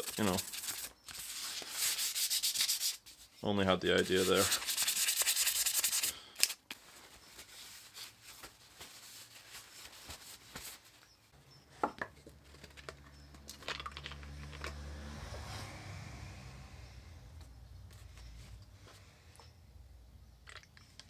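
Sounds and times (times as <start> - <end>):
small clicks and knocks of handling: 11.8 - 14.8.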